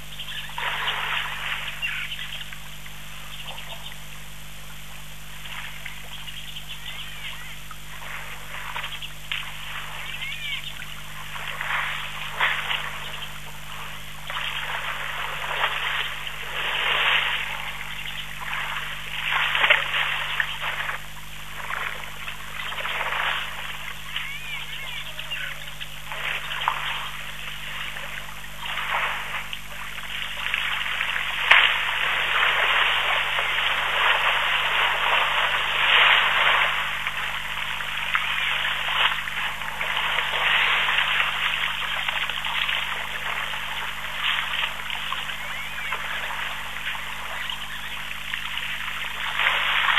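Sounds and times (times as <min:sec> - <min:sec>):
steady low hum: 0:00.0 - 0:49.9
water splashing and trickling: 0:00.5 - 0:02.7, 0:07.7 - 0:49.9.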